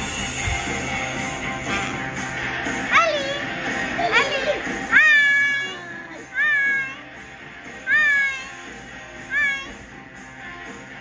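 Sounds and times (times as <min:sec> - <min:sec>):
background music: 0:00.0 - 0:11.0
small animal crying: 0:04.9 - 0:07.1, 0:07.8 - 0:09.8.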